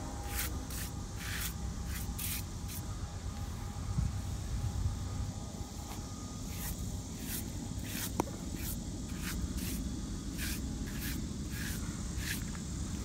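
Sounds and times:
hand brushing grass clippings: 5.9s - 12.5s.

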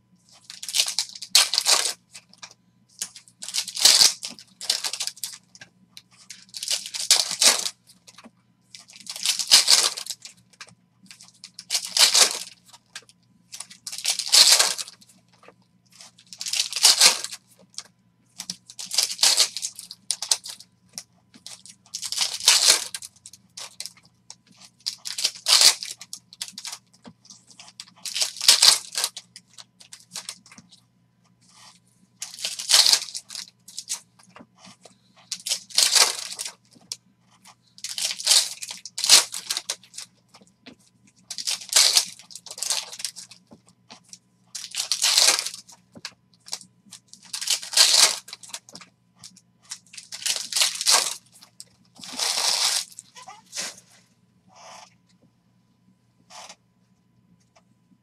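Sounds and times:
foil wrappers tearing and crinkling: 0.4s - 5.4s, 6.2s - 10.4s, 11.1s - 15.0s, 16.0s - 30.6s, 31.6s - 34.0s, 34.6s - 37.0s, 37.7s - 40.4s, 41.3s - 43.4s, 44.5s - 48.9s, 49.7s - 53.9s.

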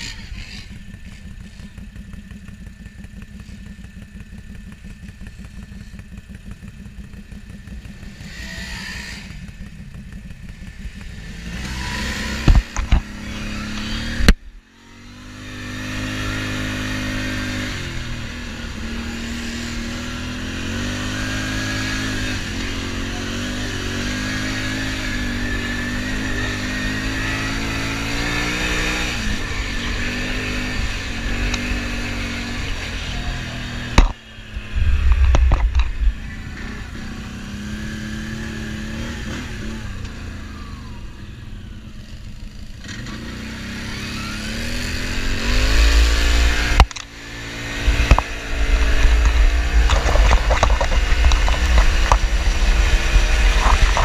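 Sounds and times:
quad bike engine running: 0.0s - 54.0s
wind buffeting microphone: 34.5s - 36.8s, 47.5s - 54.0s.

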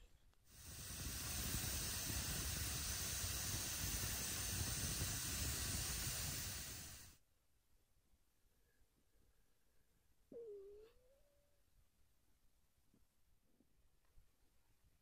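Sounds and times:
wood fire hissing: 0.5s - 7.2s.

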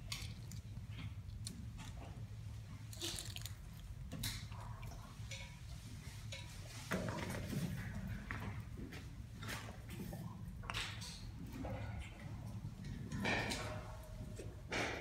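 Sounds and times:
wet squishing and biting: 2.9s - 3.9s.

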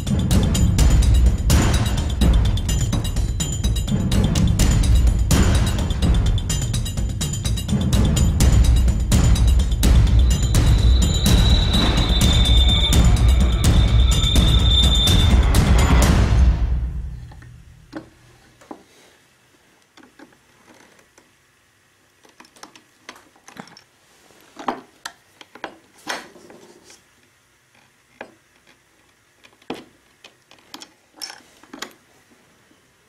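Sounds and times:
background music: 0.0s - 17.4s.

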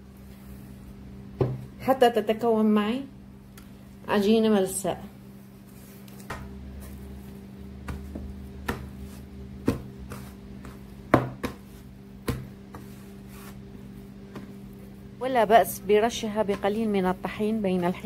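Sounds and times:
faint steady hum: 0.0s - 18.0s
dough slapped against tray: 7.8s - 9.0s, 9.6s - 12.9s.

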